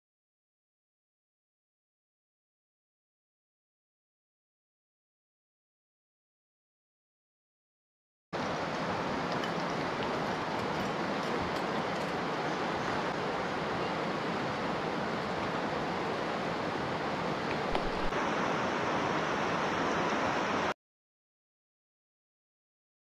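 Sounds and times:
river rapids rushing over rocks: 8.4s - 20.7s.

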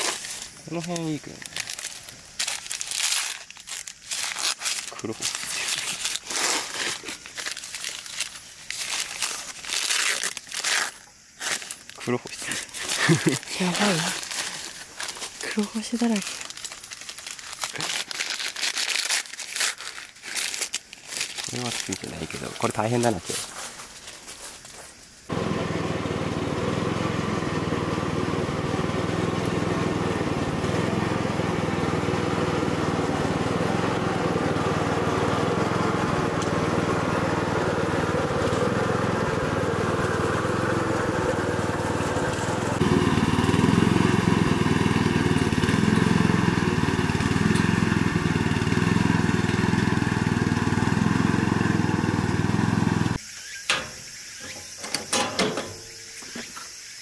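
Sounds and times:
small engine running: 0.0s - 9.0s, 11.5s - 16.6s, 25.3s - 54.0s.

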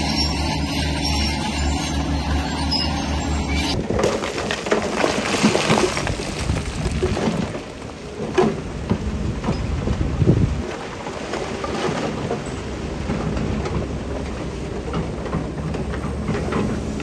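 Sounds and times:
diesel engine running: 0.0s - 4.9s, 6.0s - 17.0s
stone crunching and clattering: 3.8s - 8.5s.

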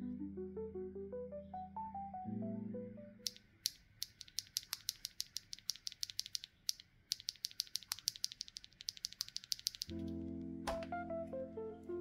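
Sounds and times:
mechanical keyboard switches clacking: 3.3s - 11.0s.

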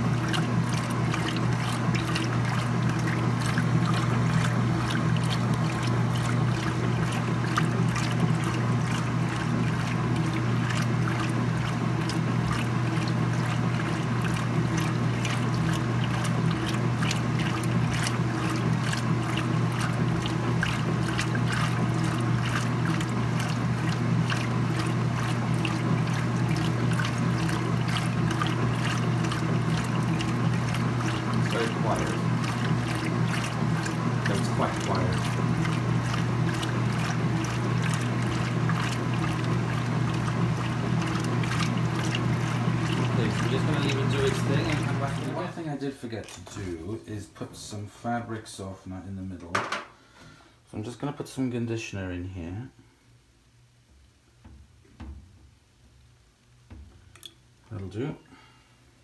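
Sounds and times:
water sloshing: 0.0s - 47.0s
washing machine motor hum: 0.0s - 48.3s.

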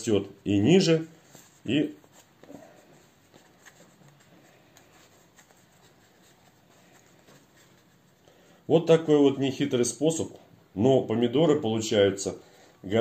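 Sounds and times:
hands rustling a plastic pot: 1.1s - 8.3s.

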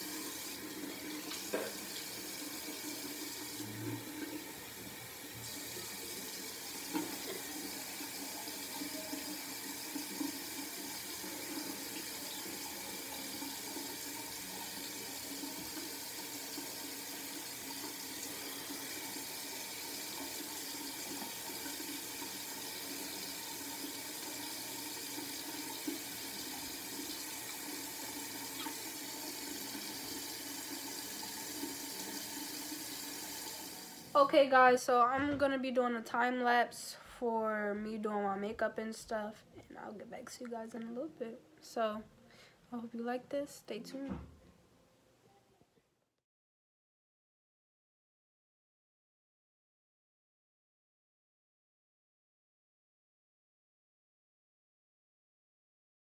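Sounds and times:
tap running into sink: 0.0s - 4.2s, 6.7s - 12.6s.

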